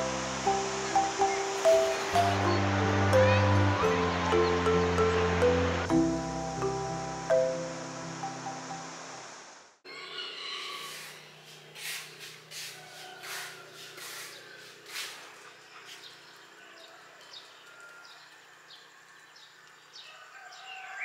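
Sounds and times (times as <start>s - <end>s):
birds chirping: 0.0s - 9.0s.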